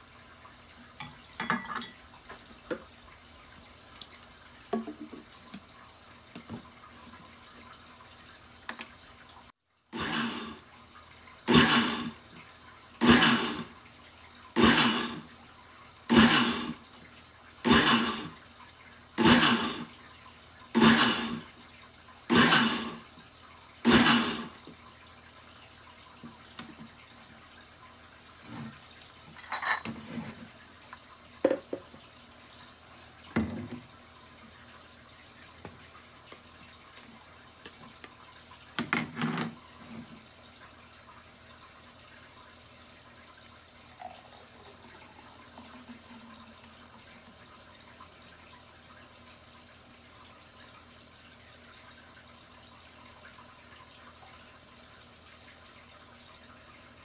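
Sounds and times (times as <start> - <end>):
blender motor pulsing: 10.0 - 10.6, 11.5 - 12.2, 13.0 - 13.7, 14.6 - 15.2, 16.1 - 16.8, 17.7 - 18.3, 19.2 - 19.9, 20.8 - 21.4, 22.3 - 23.0, 23.9 - 24.5
knocks from handling jar: 31.4 - 31.9.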